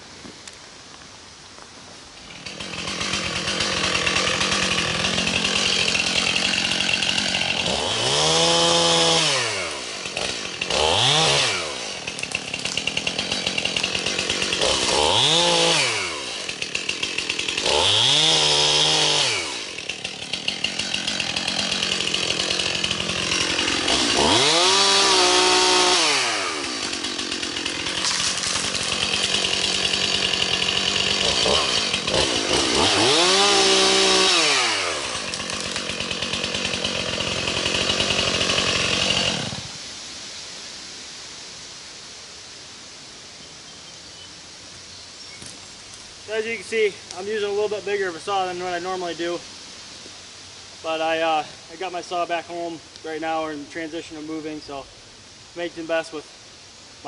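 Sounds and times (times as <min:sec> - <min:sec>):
chainsaw revving and idling: 0:02.2 - 0:39.8, 0:45.4 - 0:49.5, 0:50.7 - 0:56.4.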